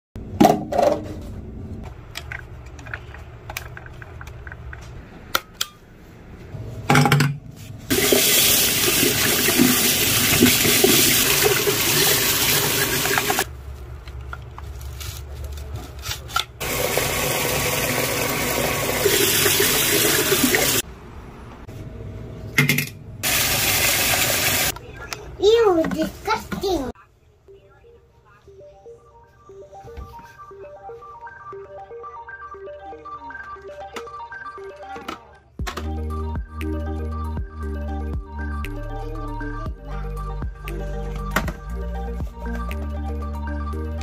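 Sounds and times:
tap water running into sink: 7.9 - 13.4, 16.6 - 20.8, 23.2 - 24.7.

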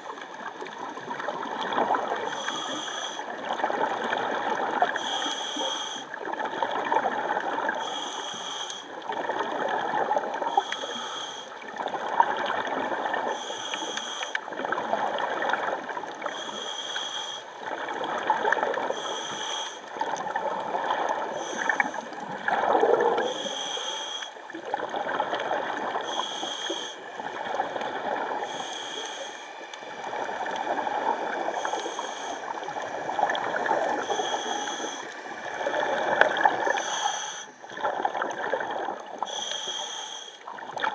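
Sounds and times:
exhaled bubbles gurgling: 0.0 - 39.8, 40.4 - 40.9
regulator inhale hiss: 2.2 - 3.4, 4.9 - 6.2, 7.8 - 9.0, 10.4 - 11.6, 13.3 - 14.5, 16.2 - 17.6, 18.9 - 20.0, 21.2 - 22.2, 23.2 - 24.4, 26.0 - 27.1, 28.4 - 30.0, 31.3 - 33.2, 33.9 - 37.8, 39.2 - 40.6.

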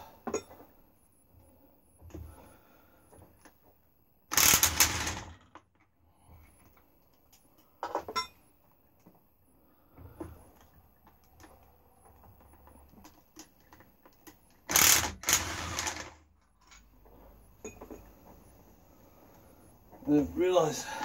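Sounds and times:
socket ratchet rattling: 4.3 - 5.4, 14.7 - 16.1.

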